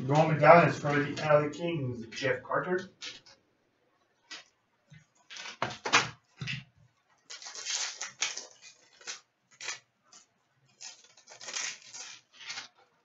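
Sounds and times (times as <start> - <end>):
foil wrapper crinkling and tearing: 7.2 - 13.0.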